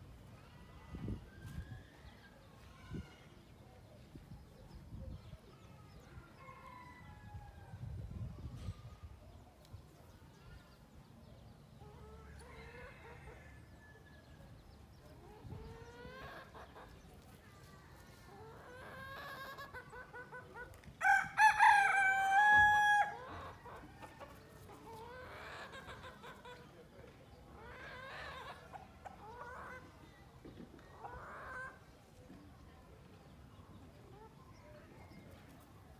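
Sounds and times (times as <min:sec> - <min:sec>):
chickens clucking: 0:15.0 - 0:17.4, 0:18.0 - 0:21.0, 0:23.2 - 0:32.6.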